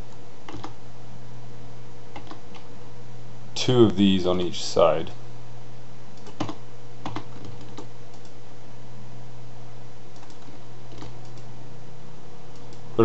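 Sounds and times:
steady low hum: 0.0s - 13.0s
computer keyboard clicks: 0.5s - 0.8s, 2.2s - 2.7s, 6.2s - 8.4s, 10.1s - 11.5s.

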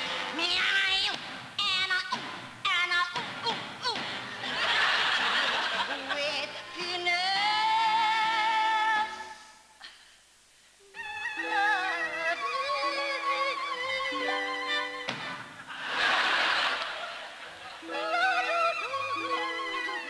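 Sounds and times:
woman singing: 0.3s - 4.0s, 5.8s - 9.5s, 10.9s - 15.1s, 17.8s - 20.0s.

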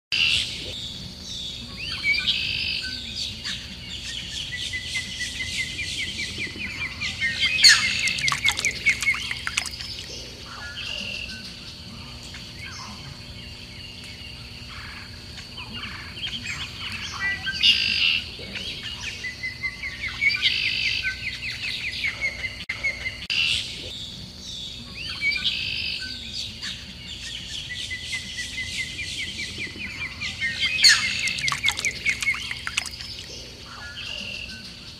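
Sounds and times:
small songbirds chirping: 0.2s - 23.2s, 23.8s - 34.9s
bird fast trill: 5.6s - 10.1s, 28.8s - 33.4s.

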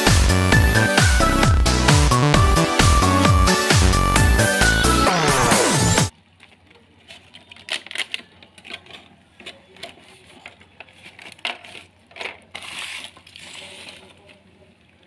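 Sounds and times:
plastic packaging crinkling: 6.2s - 14.5s.

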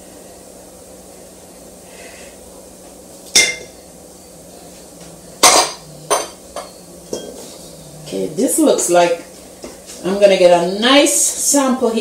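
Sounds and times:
utensils clanking on metal bowl: 3.3s - 3.8s, 5.0s - 9.2s.

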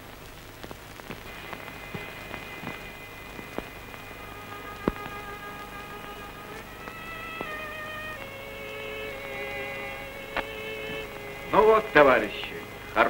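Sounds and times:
film soundtrack hiss and crackle: 0.0s - 13.0s
faint sustained music notes: 1.2s - 13.0s.

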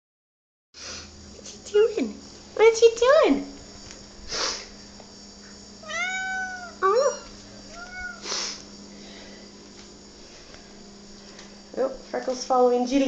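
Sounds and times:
faint steady hum: 0.8s - 13.0s
kitten meowing: 5.8s - 8.2s.

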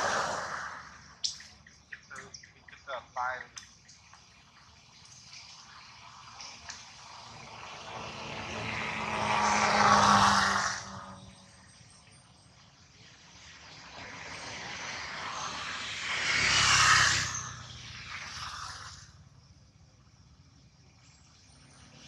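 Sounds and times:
engine passing by: 0.0s - 1.2s, 4.2s - 19.4s.

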